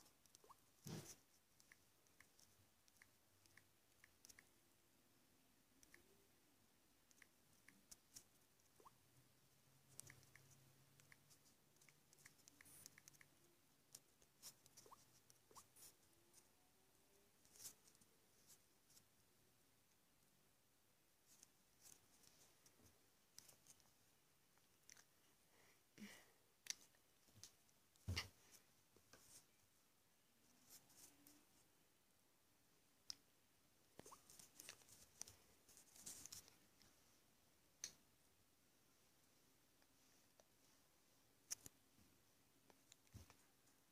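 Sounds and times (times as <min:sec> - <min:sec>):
fingertips tapping touchscreen: 0:00.0 - 0:04.6, 0:07.0 - 0:09.0, 0:09.8 - 0:16.4, 0:34.0 - 0:35.4.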